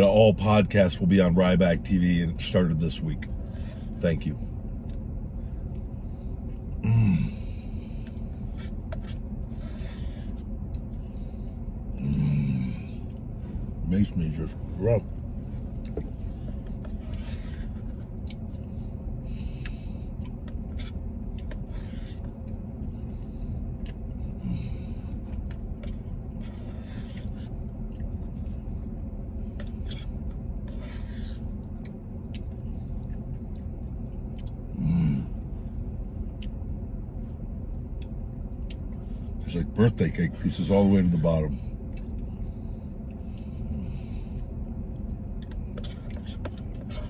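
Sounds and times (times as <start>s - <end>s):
vehicle engine hum: 0.0s - 47.0s
chewing and mouth sounds: 4.7s - 6.8s, 7.4s - 13.3s, 15.6s - 35.5s, 36.1s - 39.4s, 41.6s - 44.1s, 44.9s - 47.0s
person humming mm: 6.8s - 7.4s, 12.0s - 12.9s.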